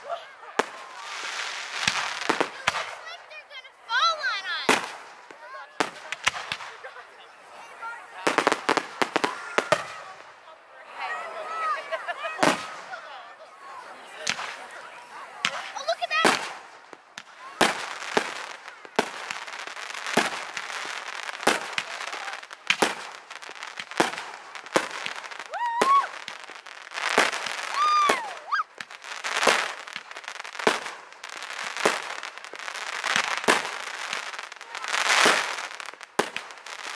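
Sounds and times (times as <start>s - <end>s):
fireworks crackling: 0.0s - 36.9s
firework whistling: 15.4s - 36.9s.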